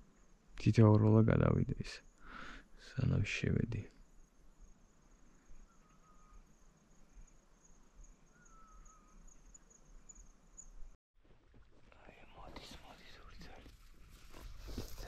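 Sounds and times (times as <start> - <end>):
insects trilling: 1.4 - 10.7
faint wavering whistles: 5.4 - 7.3, 8.0 - 10.3.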